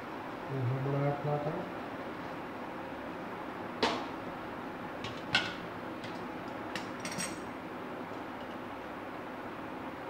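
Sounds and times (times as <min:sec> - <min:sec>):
metal tin and tongs clanking: 0:06.8 - 0:07.5.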